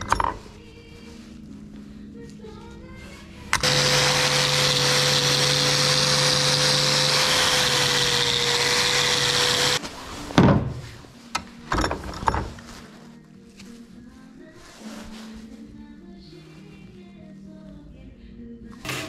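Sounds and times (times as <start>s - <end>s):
angle grinder wire brushing metal: 3.6s - 9.8s.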